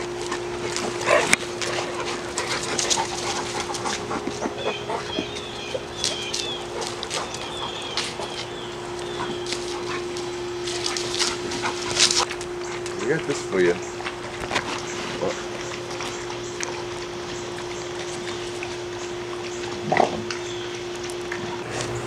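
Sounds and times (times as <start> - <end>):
dogs scuffling: 0.0 - 22.0
steady low hum: 0.0 - 22.0.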